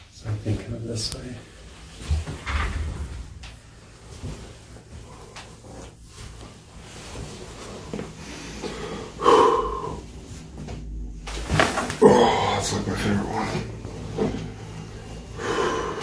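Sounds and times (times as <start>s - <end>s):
clothing rustling: 0.9s - 9.2s, 9.9s - 16.0s
man grunting exhale: 8.6s - 10.1s, 12.0s - 12.8s, 15.4s - 16.0s.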